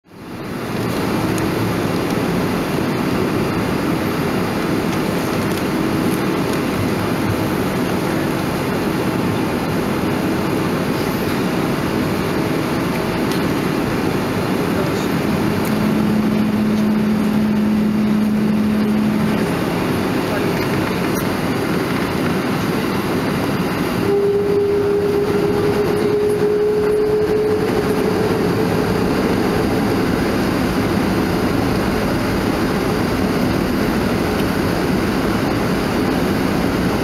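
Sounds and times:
airliner cabin rumble: 0:00.1 - 0:37.0
steady low hum: 0:00.2 - 0:37.0.

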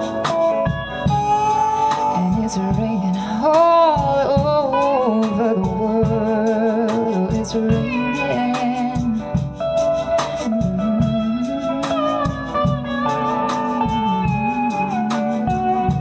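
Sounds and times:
band playing soul ballad: 0:00.0 - 0:16.0.

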